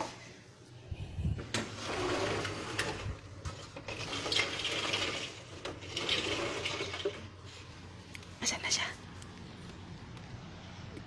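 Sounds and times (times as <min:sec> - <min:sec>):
sliding window scraping open: 0:01.5 - 0:07.4.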